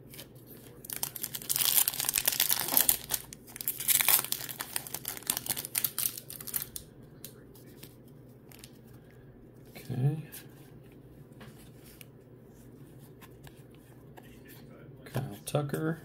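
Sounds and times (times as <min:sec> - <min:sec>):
foil wrapper crinkling and tearing: 0:00.1 - 0:06.8.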